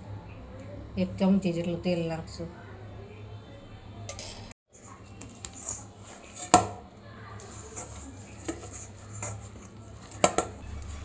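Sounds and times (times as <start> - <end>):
hands kneading dough: 4.8 - 11.0.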